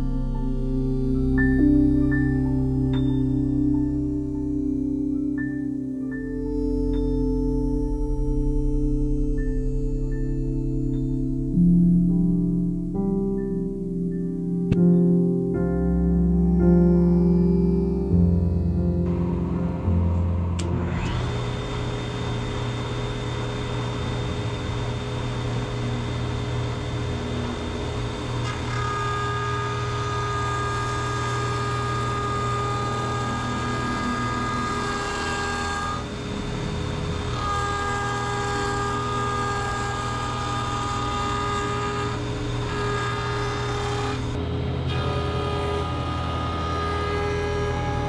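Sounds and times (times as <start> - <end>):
high cutting tone on wood: 19.0 - 48.0
jointer running: 20.2 - 48.0.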